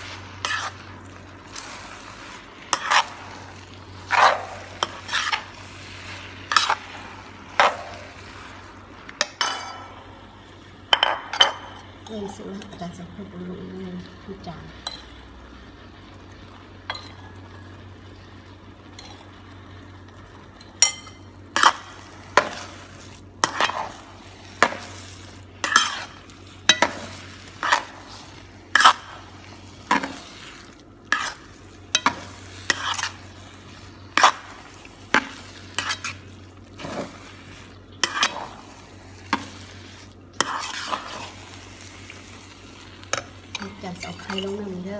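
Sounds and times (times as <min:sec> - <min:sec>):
metal utensil scraping pan: 0:00.0 - 0:00.9, 0:02.7 - 0:03.4, 0:04.0 - 0:05.7, 0:06.5 - 0:08.1, 0:23.4 - 0:24.0, 0:24.6 - 0:29.3, 0:31.1 - 0:33.3, 0:35.1 - 0:36.2, 0:38.0 - 0:38.7, 0:40.4 - 0:41.5, 0:43.1 - 0:44.8
quiet sizzle: 0:00.0 - 0:44.9
steady low hum: 0:00.0 - 0:44.9.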